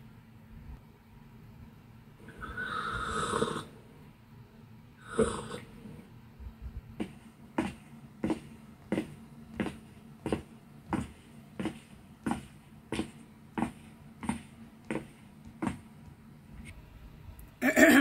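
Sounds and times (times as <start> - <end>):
footsteps: 6.9 - 16.8.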